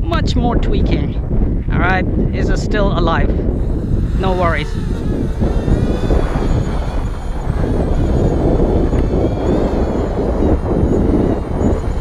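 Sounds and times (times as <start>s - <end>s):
wind buffeting microphone: 0.0s - 12.0s
drone motors whining: 3.4s - 12.0s.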